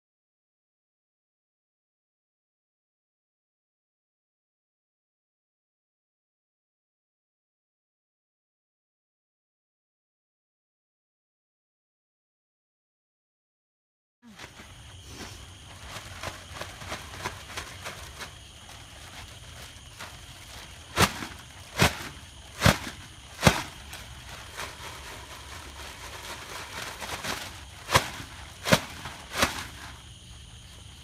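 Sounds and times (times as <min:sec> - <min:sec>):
plastic bag shaken and flapped: 0:14.3 - 0:31.0.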